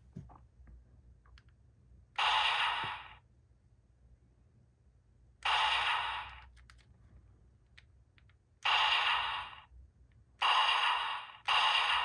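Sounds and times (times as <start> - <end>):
toy blaster electronic firing sound: 2.2 - 3.2, 5.4 - 6.5, 8.6 - 9.7, 10.4 - 12.0.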